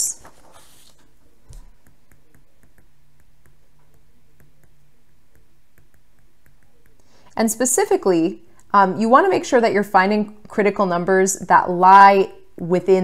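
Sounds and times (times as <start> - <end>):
faint low hum: 0.0 - 13.0
stylus tapping on tablet screen: 1.5 - 7.2.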